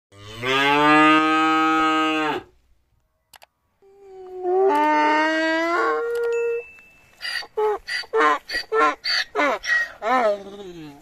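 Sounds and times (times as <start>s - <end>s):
cow mooing: 0.1s - 2.5s
donkey braying: 7.2s - 11.0s.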